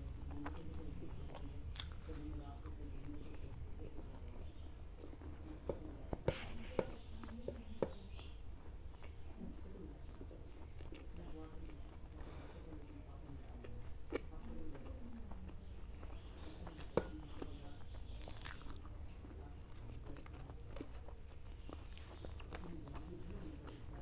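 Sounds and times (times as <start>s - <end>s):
person chewing food: 0.0s - 24.0s
wet mouth clicks: 1.7s - 2.0s.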